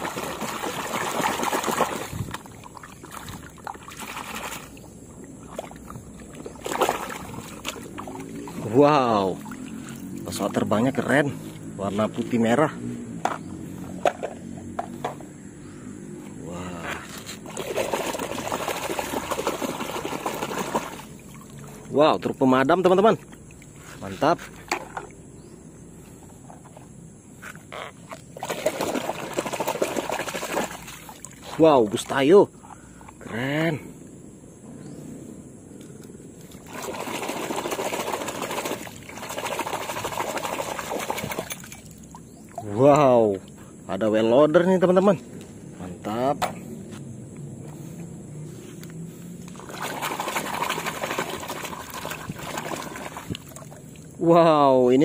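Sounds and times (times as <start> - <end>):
muddy water splashing: 0.0 - 12.4, 17.0 - 25.2, 28.1 - 32.3, 35.8 - 43.7, 49.3 - 55.0.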